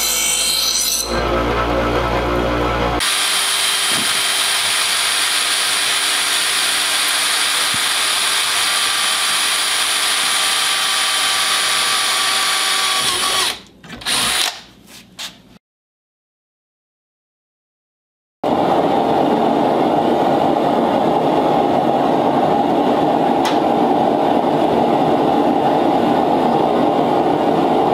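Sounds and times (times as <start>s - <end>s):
cordless drill drilling: 3.0s - 14.6s.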